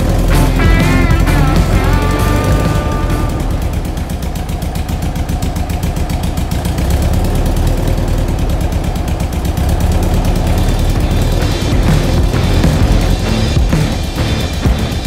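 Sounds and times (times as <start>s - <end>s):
engine idling: 0.0s - 15.0s.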